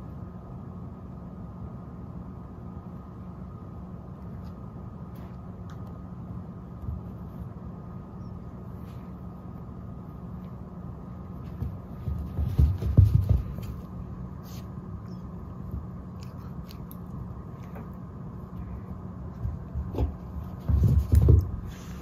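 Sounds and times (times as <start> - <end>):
steady low hum: 0.0 - 22.0
muffled thumps and rustles: 6.8 - 7.5, 11.3 - 14.8, 19.3 - 22.0.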